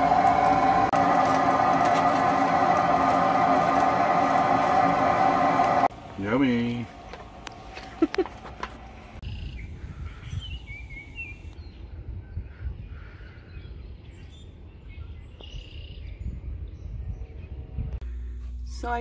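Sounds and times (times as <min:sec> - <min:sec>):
steady low rumble: 0:00.0 - 0:15.2, 0:15.9 - 0:19.0
birds chirping: 0:05.9 - 0:18.3.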